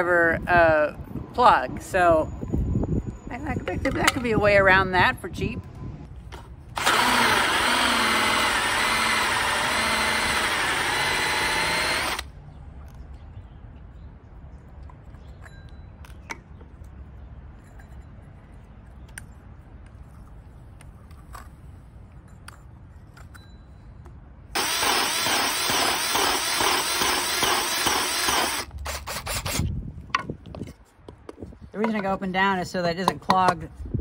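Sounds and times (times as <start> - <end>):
drill cutting into wood: 6.8 - 12.3, 24.6 - 29.6.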